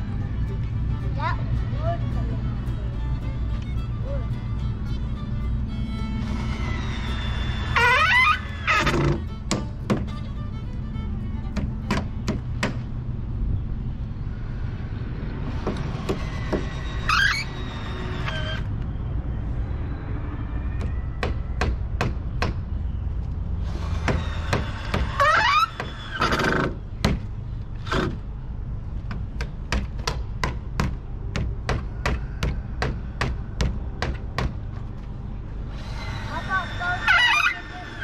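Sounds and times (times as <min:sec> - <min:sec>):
scraping with rising squeaks: 0:00.0 - 0:11.9, 0:13.9 - 0:22.0, 0:22.8 - 0:27.0, 0:34.8 - 0:38.0
hammer striking nails: 0:11.6 - 0:12.9, 0:29.4 - 0:34.6.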